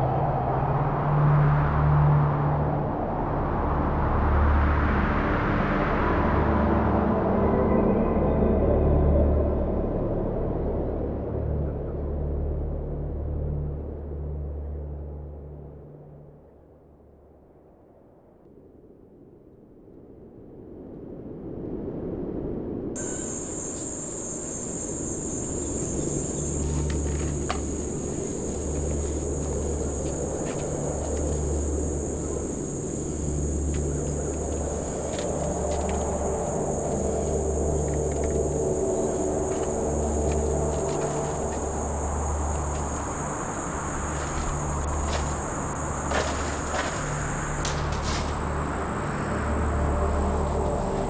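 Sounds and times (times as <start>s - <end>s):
low layered drone: 0.0s - 17.9s, 23.0s - 51.0s
high-pitched insect chorus: 23.0s - 51.0s.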